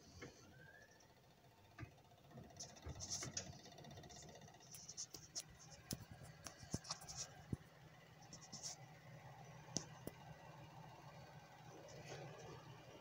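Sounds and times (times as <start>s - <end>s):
computer fans humming: 0.0s - 13.0s
light clicks and scratches: 1.8s - 10.4s, 11.8s - 12.7s.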